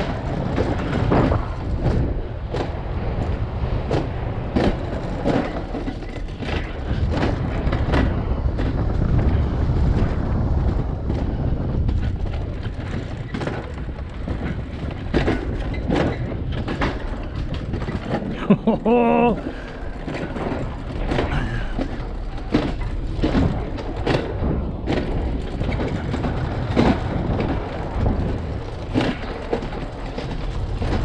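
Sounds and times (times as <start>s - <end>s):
sled rolling on steel track: 0.0s - 31.0s
wheels clacking over track joints: 0.0s - 31.0s.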